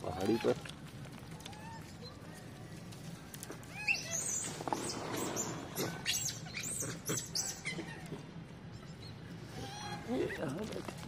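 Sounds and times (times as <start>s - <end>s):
monkeys shrieking: 3.7s - 8.2s, 8.8s - 10.5s.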